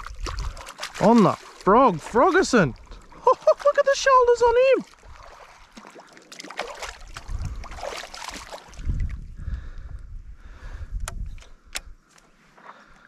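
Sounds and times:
water sloshing and splashing: 0:00.0 - 0:09.3
low rumble on microphone: 0:07.1 - 0:07.8, 0:08.8 - 0:11.7.

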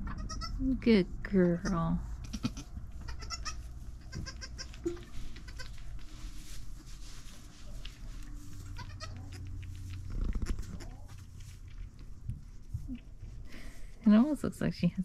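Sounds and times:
soft goat calls: 0:01.6 - 0:05.8, 0:08.8 - 0:09.4
wet licking and rustling: 0:05.6 - 0:13.4.

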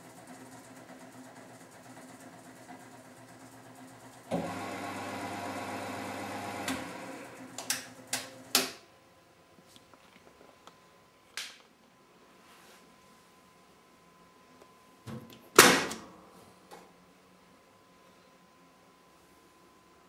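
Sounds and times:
washing machine humming: 0:00.0 - 0:08.7.

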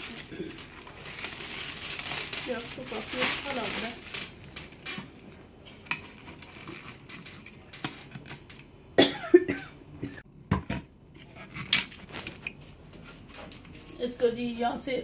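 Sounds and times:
plastic wrap crinkling: 0:00.0 - 0:05.4, 0:11.8 - 0:14.2.

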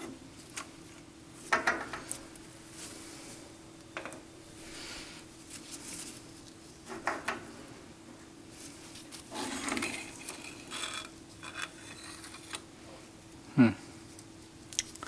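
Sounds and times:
faint steady hum: 0:00.0 - 0:15.0
metal-on-metal scrape: 0:09.3 - 0:12.6
metal parts clinking: 0:09.4 - 0:12.6.

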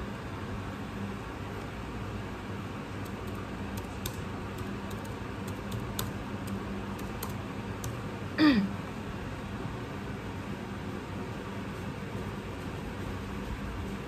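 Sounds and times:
steady low hum: 0:00.0 - 0:14.0
person's voiced sound: 0:08.4 - 0:08.7.

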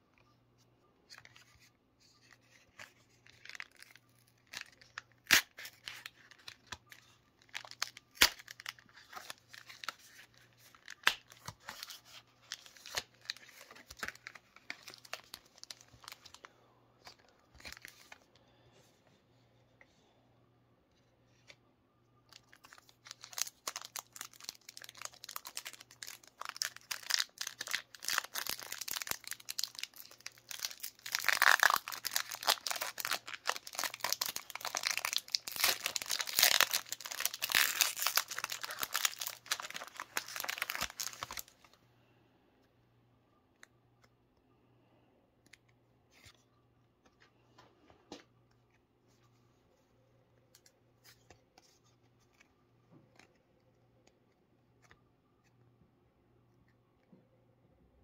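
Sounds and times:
foil wrapper crinkling and tearing: 0:02.5 - 0:16.4, 0:22.4 - 0:41.7
faint clicks of cards handled: 0:50.4 - 0:55.6.

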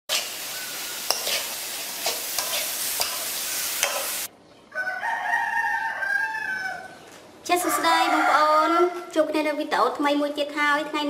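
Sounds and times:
shrimp sizzling in oil: 0:00.1 - 0:04.3
spatula scraping wok: 0:00.1 - 0:04.3
rooster crowing: 0:04.7 - 0:09.2.

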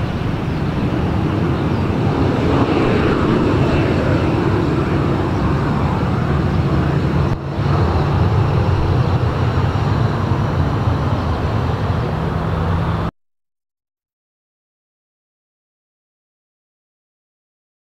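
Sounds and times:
jet engines at takeoff thrust: 0:00.0 - 0:13.1.

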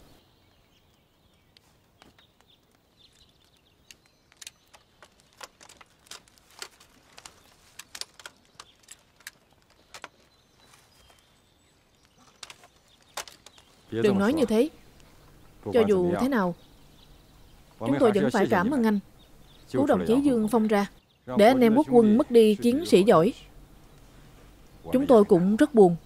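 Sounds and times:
faint sharp clicks and ticks: 0:00.8 - 0:11.3.

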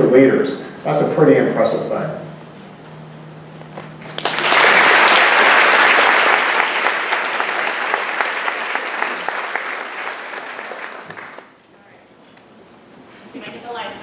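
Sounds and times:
audience applauding: 0:04.0 - 0:11.6.

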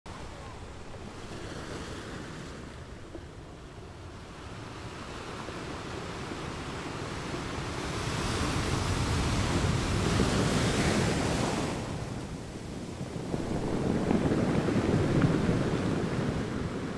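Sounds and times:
ocean waves breaking: 0:00.1 - 0:16.9.

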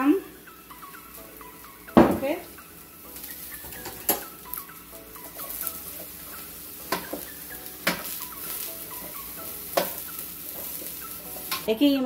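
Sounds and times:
broccoli sizzling in oil: 0:00.0 - 0:12.0
utensil clanking against pan: 0:03.2 - 0:04.4, 0:05.2 - 0:11.7.

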